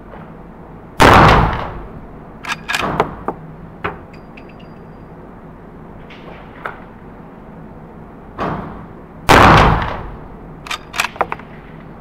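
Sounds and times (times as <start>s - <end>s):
rifle shot echoing: 1.0s - 1.9s, 9.3s - 10.2s
rifle lever metallic clicks: 2.4s - 3.1s, 10.6s - 11.4s
faint ringing ticks: 4.1s - 5.2s.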